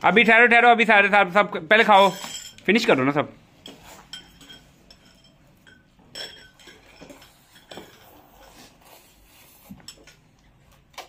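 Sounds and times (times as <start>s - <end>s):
cutlery clinking on glass bowls: 2.0s - 2.8s, 3.6s - 8.3s.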